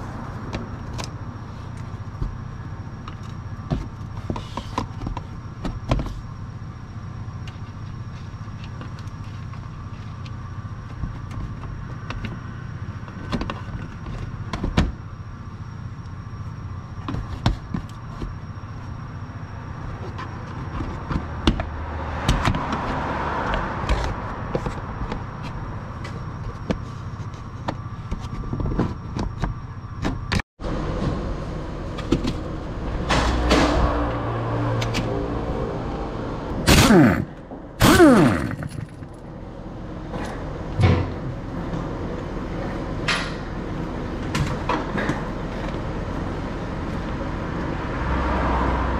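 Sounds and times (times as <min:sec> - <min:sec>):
steady low hum: 0:23.8 - 0:47.9.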